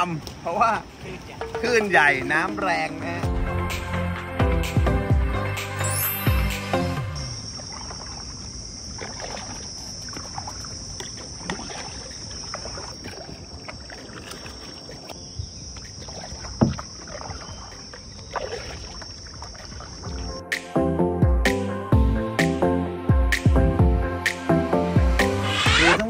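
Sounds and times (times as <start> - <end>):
paddle splashing in water: 7.3 - 20.4.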